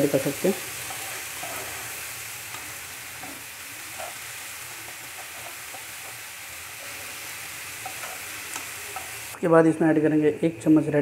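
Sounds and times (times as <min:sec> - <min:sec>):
vegetables sizzling in oil: 0:00.0 - 0:11.0
spatula scraping and tapping pan: 0:00.8 - 0:01.9, 0:04.9 - 0:06.2, 0:07.8 - 0:09.2.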